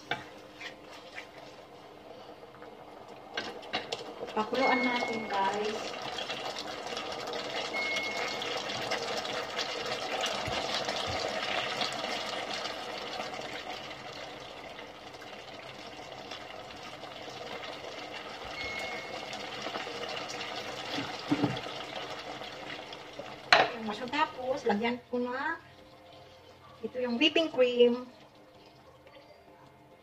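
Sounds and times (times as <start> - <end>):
sauce bubbling in a pan: 0.0 - 29.2
short high beeps: 7.7 - 8.5, 18.6 - 19.3.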